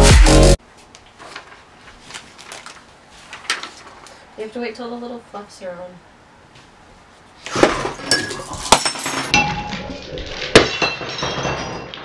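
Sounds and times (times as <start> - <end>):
glass breaking crash: 7.6 - 12.0
glass pieces clinking and rattling: 8.0 - 12.0.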